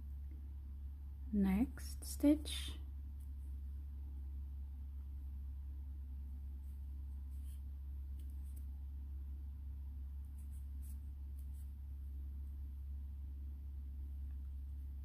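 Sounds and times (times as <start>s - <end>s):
steady low hum: 0.0s - 15.0s
crochet thread rustling: 6.2s - 9.4s, 10.1s - 12.8s.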